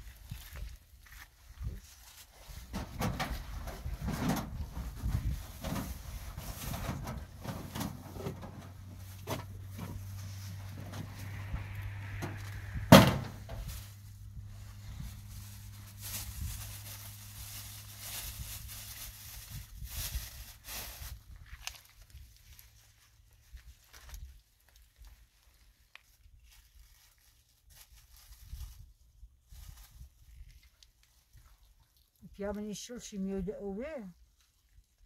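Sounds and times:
knocks and handling clatter: 2.7s - 10.2s
sharp loud bang: 11.1s - 13.7s.

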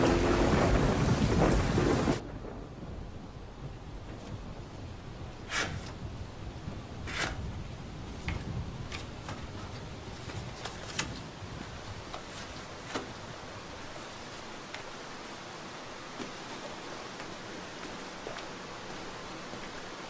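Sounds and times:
background hiss: 0.0s - 20.0s
paper rustles and taps: 8.1s - 13.3s.

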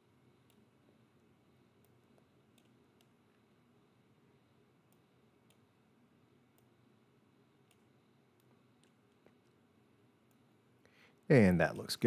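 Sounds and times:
soft sharp clicks: 1.8s - 3.2s, 7.6s - 9.6s.

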